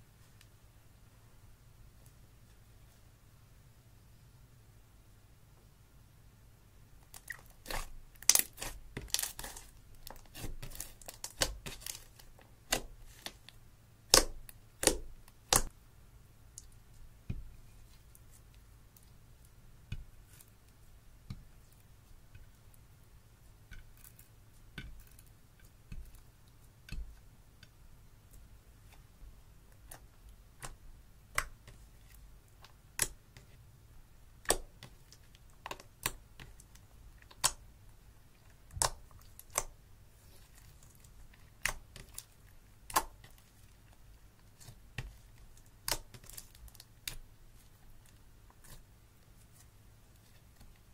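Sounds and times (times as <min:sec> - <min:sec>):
slime squishing and popping: 0:07.1 - 0:13.4.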